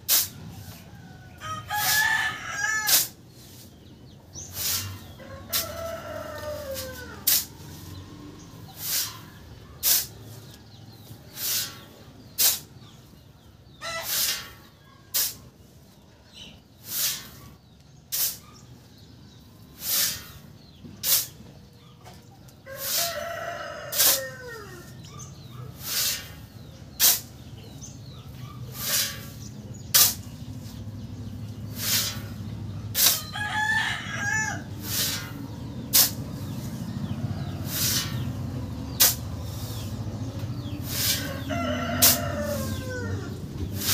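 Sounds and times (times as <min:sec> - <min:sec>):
shovel scraping sand: 0:00.0 - 0:00.9, 0:01.7 - 0:13.0, 0:13.8 - 0:15.8, 0:16.8 - 0:19.0, 0:19.6 - 0:21.4, 0:22.7 - 0:30.8, 0:31.6 - 0:43.9
rooster crowing: 0:00.8 - 0:03.1, 0:05.2 - 0:07.4, 0:22.7 - 0:25.0, 0:33.1 - 0:34.8, 0:41.0 - 0:43.4
chicken calling: 0:04.4 - 0:10.6, 0:12.9 - 0:15.2, 0:31.7 - 0:43.9.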